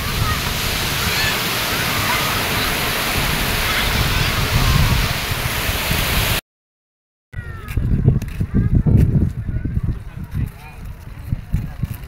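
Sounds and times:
sea waves breaking on sand: 0.0 - 6.4.

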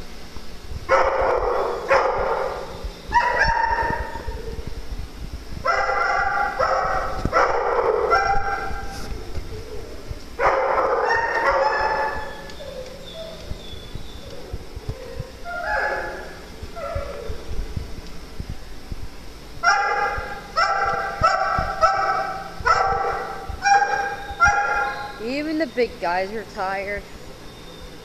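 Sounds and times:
dog barking: 0.9 - 4.4, 5.7 - 8.9, 10.4 - 13.4, 15.0 - 17.3, 19.6 - 25.2.

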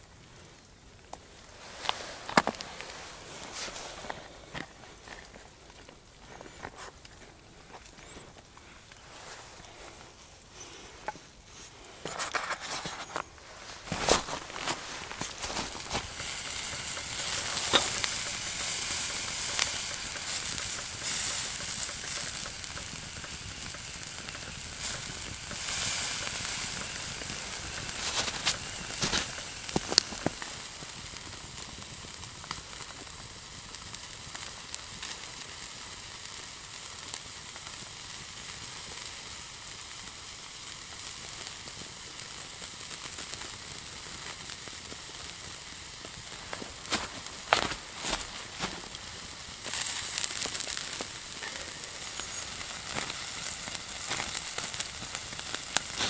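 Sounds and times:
steak sizzling on a grill: 13.6 - 56.0.

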